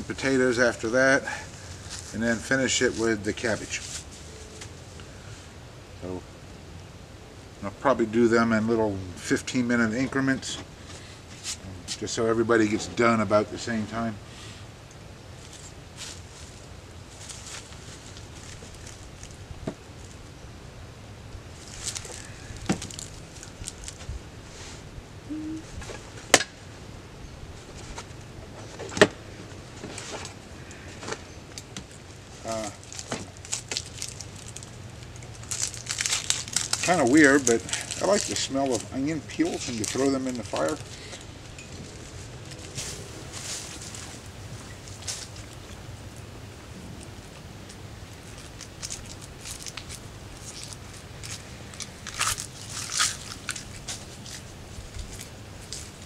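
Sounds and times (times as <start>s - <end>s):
rustles and clicks: 15.4s - 20.2s, 21.5s - 24.8s, 27.5s - 56.0s
onion skin crackling: 21.6s - 24.1s, 31.6s - 41.3s, 47.0s - 56.0s.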